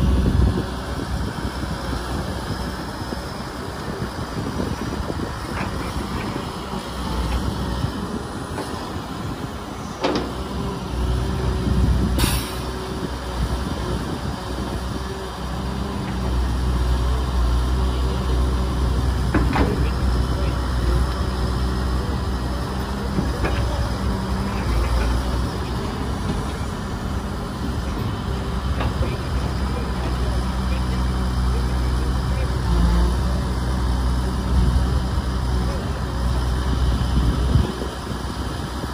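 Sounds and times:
excavator diesel engine droning: 0:00.0 - 0:38.9
short hydraulic hiss: 0:12.2 - 0:12.7.

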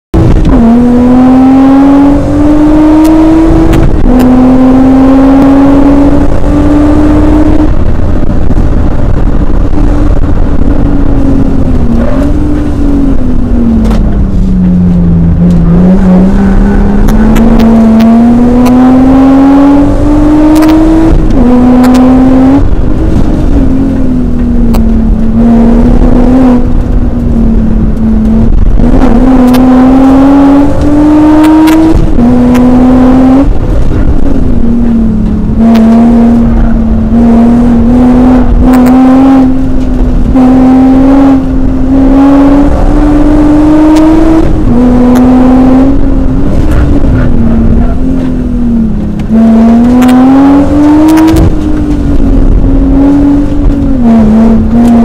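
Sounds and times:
car engine at full throttle: 0:00.0 - 0:55.0.

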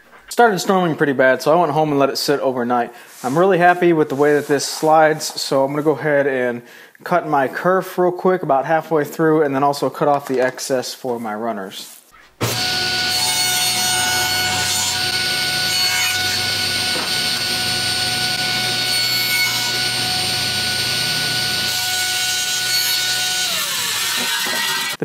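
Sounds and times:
saw blade cutting wood: 0:12.4 - 0:25.0
table saw whining: 0:12.4 - 0:25.0.

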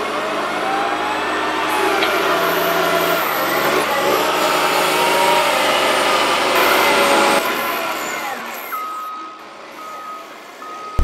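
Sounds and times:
diesel engine revving: 0:00.0 - 0:07.5.

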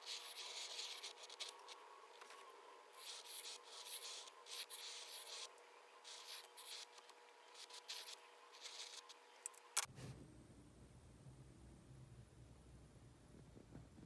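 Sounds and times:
pen scratching on paper: 0:00.0 - 0:09.2.

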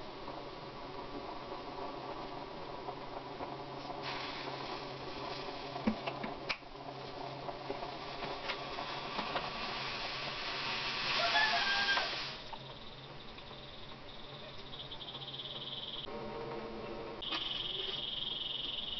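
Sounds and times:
gas burner hissing: 0:00.0 - 0:16.4, 0:17.1 - 0:18.9.

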